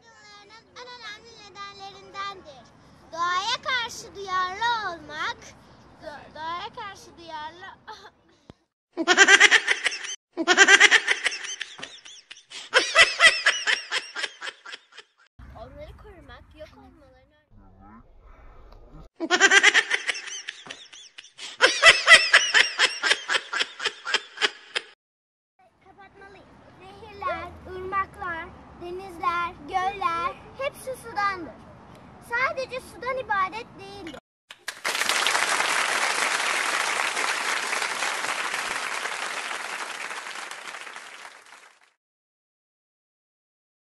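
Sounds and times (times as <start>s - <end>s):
baby laughing: 9.0s - 15.1s
crowd applause: 34.5s - 42.0s.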